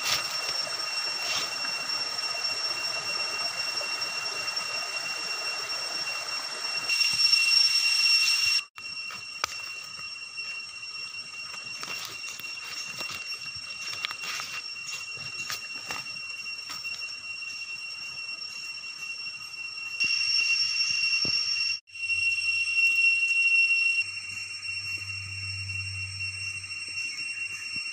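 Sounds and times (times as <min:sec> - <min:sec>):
footsteps crackling through dry leaves: 0:00.0 - 0:01.9, 0:11.4 - 0:17.1
high-pitched whine: 0:00.0 - 0:27.9
brushing through undergrowth: 0:01.2 - 0:01.6.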